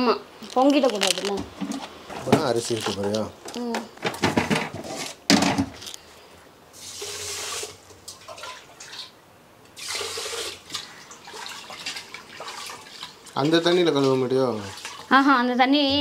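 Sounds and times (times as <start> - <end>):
water running into a pot: 6.7 - 15.6.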